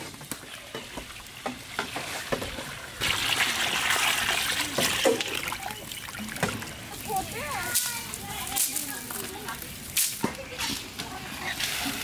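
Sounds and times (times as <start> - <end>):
water splashing into hot wok: 0.2 - 9.2.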